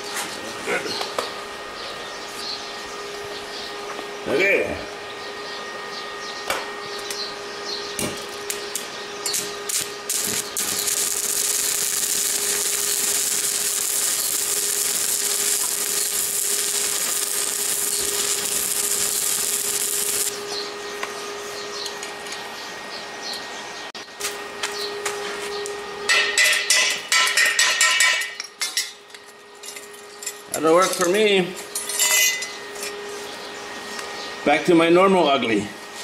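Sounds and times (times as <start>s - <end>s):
welding arc crackling hiss: 8.0s - 20.6s.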